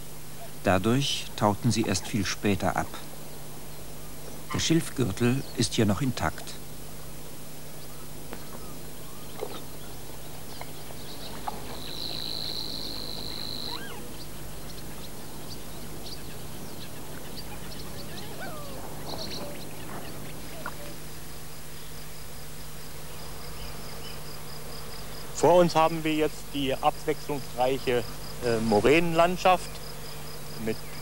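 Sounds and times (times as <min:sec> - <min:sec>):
tape hum and hiss: 0:00.0 - 0:31.0
bird calls and chirps: 0:07.7 - 0:22.2.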